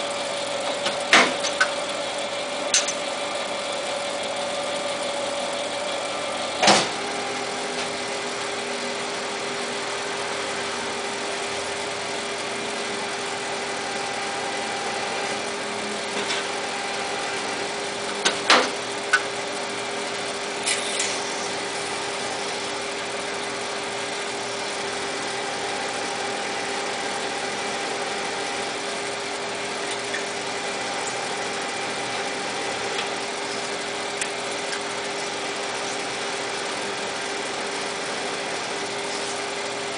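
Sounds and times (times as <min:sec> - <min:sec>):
lathe humming: 0:00.0 - 0:39.9.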